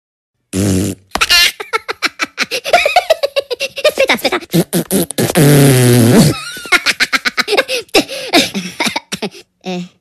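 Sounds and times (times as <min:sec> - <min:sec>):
woman laughing: 0:01.2 - 0:04.6, 0:06.4 - 0:09.5.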